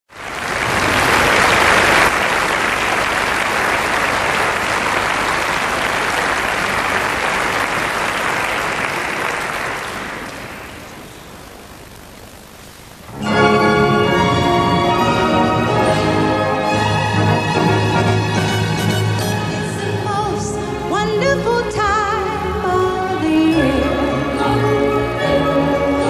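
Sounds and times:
audience applauding: 0:00.1 - 0:11.2.

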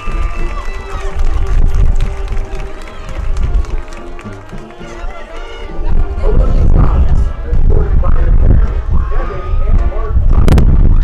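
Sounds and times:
marching band playing: 0:00.0 - 0:06.3
strong low rumble: 0:05.7 - 0:11.0.

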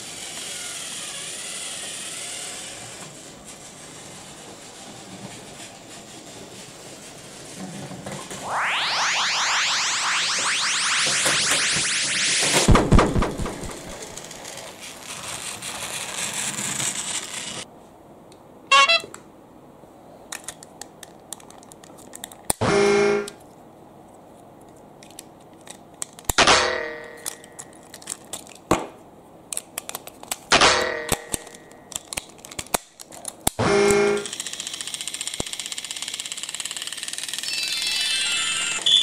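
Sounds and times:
electronic toy sound effects: 0:37.4 - 0:39.0.

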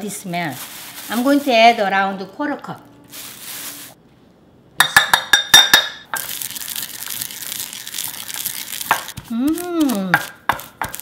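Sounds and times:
pestle grinding seeds: 0:06.1 - 0:11.0
person humming: 0:09.2 - 0:10.3.

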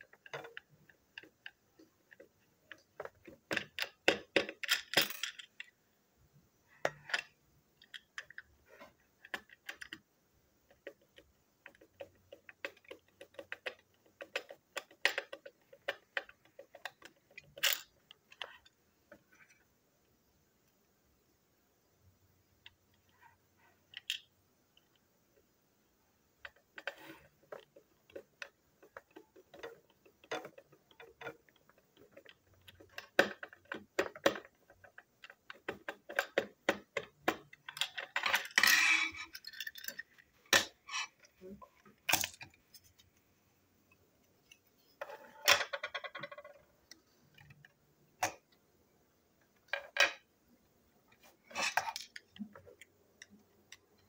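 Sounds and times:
plastic parts clicking: 0:00.0 - 0:05.8, 0:06.8 - 0:10.0, 0:10.7 - 0:19.5, 0:23.8 - 0:25.0, 0:26.4 - 0:43.1, 0:51.2 - 0:54.0.

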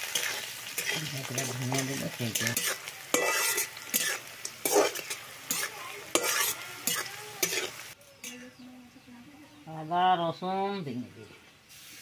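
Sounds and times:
onions sizzling in hot oil: 0:00.0 - 0:08.4, 0:11.6 - 0:12.0
metal spatula scraping a wok: 0:00.0 - 0:08.5.

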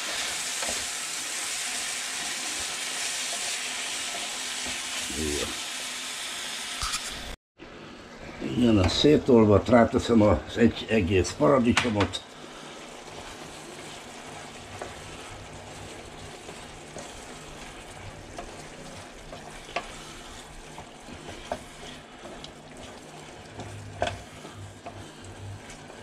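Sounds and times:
sauce sizzling in a pan: 0:00.0 - 0:07.4, 0:11.4 - 0:26.0.

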